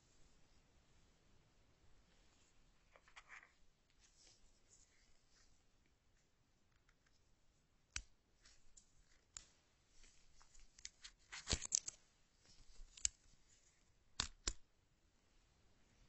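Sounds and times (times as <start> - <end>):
crisp clicks: 7.9 - 9.5, 10.4 - 12.0, 12.7 - 13.3, 14.2 - 14.6.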